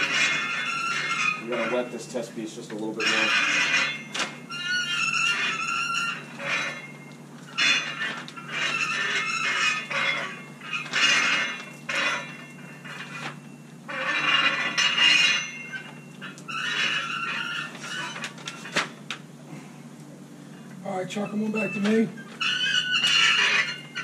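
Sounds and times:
roller squeaking on plastic: 0.0 - 2.2, 2.8 - 19.1, 21.1 - 24.0.

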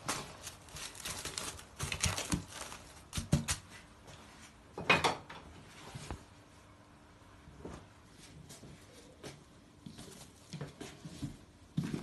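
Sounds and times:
cling film crinkling: 0.0 - 3.7.

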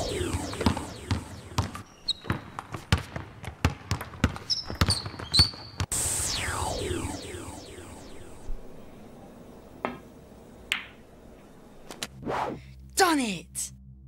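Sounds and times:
magic sound effect sweeping down: 0.0 - 1.6, 5.9 - 9.0
basketball bouncing on court: 0.2 - 5.9
sneakers squeaking: 0.5 - 5.9.

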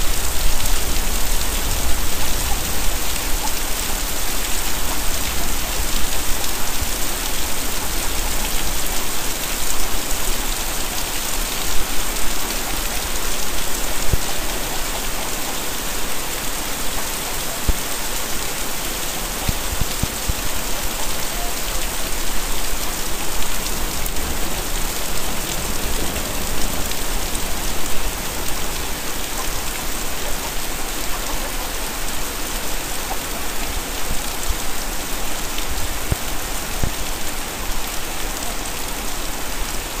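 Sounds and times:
heavy rain pouring: 0.0 - 40.0
raindrop ticks: 19.0 - 31.6.

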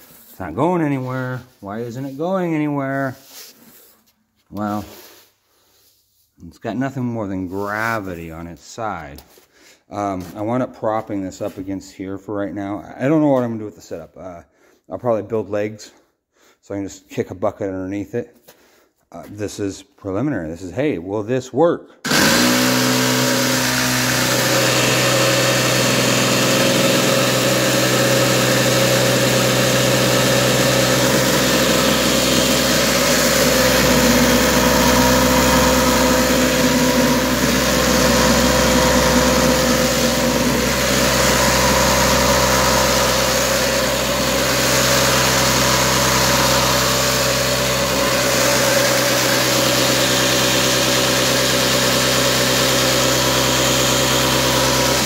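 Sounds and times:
sander buzzing hum: 22.0 - 55.0.

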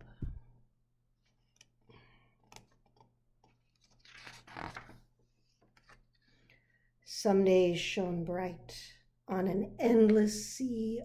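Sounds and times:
book page turning: 2.5 - 6.2.

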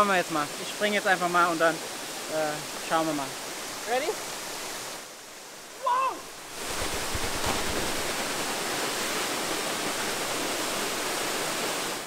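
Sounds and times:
waterfall rushing: 0.0 - 12.0
person shouting: 5.8 - 6.3.

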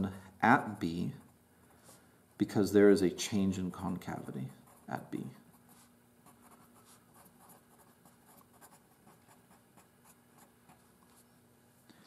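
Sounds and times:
pencil scratching on paper: 4.2 - 11.3.

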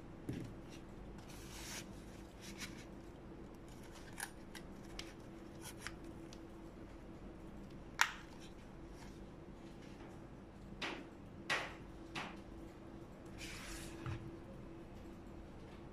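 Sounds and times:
low steady hum: 0.0 - 15.9.

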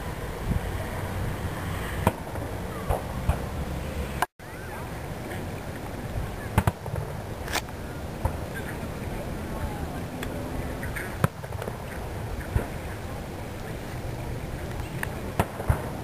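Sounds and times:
fireworks banging: 10.9 - 13.0, 15.1 - 16.0.

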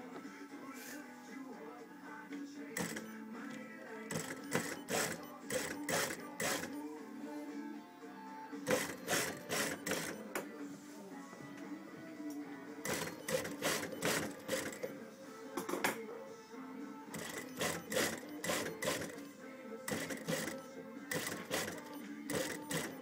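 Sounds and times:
sewing machine motor hum: 2.8 - 3.0, 4.1 - 6.8, 8.7 - 10.2, 12.8 - 14.9, 17.1 - 19.3, 19.9 - 23.0
sewing machine needle clicks: 2.8 - 3.1, 4.1 - 6.8, 8.7 - 10.2, 12.9 - 14.9, 17.2 - 19.2, 19.9 - 23.0.

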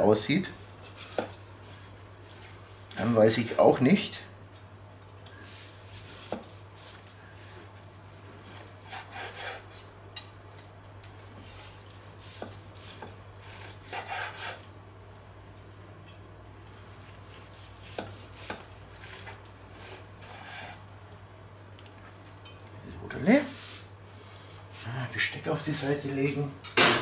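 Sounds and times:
carving knife sawing through meat: 8.5 - 9.9, 12.2 - 14.7, 17.3 - 20.8.

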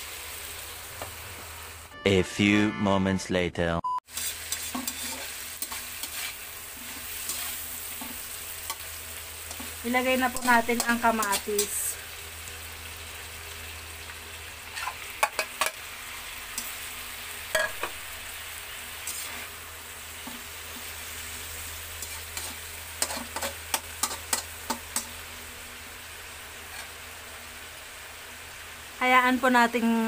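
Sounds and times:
food sizzling in a wok: 0.0 - 1.9, 4.1 - 30.0
metal spatula scraping pan: 4.1 - 11.9, 14.7 - 15.8, 19.0 - 19.5, 22.0 - 25.2, 26.7 - 27.0.

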